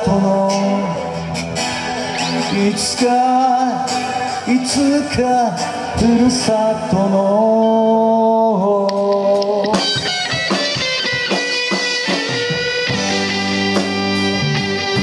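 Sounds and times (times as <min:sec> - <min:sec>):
man singing: 0:00.0 - 0:01.4, 0:02.3 - 0:10.1
rock band playing: 0:00.0 - 0:08.2, 0:08.8 - 0:15.0
drum hits: 0:09.0 - 0:13.2.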